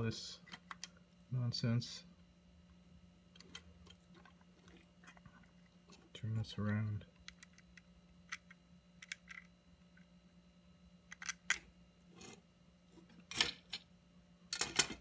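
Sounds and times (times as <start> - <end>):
hands handling plastic parts clicking: 6.6 - 9.5, 11.1 - 11.6.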